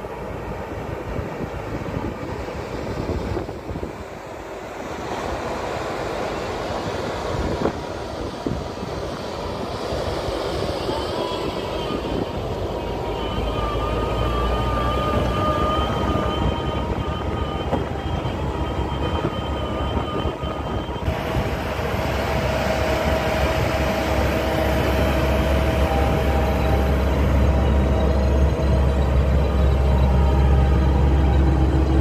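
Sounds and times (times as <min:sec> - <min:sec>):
robot tractor machine drone: 0:08.9 - 0:32.0.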